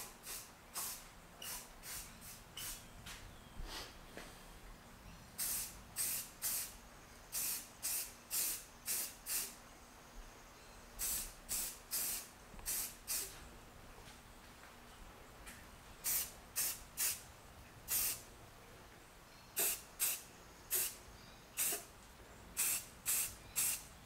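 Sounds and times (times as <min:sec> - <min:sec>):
spray-paint can hissing: 0:00.0 - 0:02.8, 0:05.4 - 0:09.6, 0:11.0 - 0:13.3, 0:16.0 - 0:17.2, 0:17.9 - 0:18.2, 0:19.6 - 0:21.0, 0:21.6 - 0:21.9, 0:22.6 - 0:23.9.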